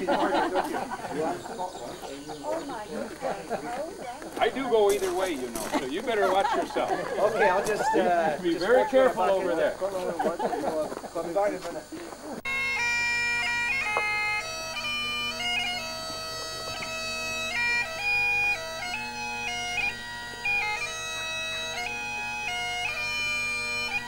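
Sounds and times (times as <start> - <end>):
bagpipes playing: 0.0 - 10.4, 12.4 - 24.0.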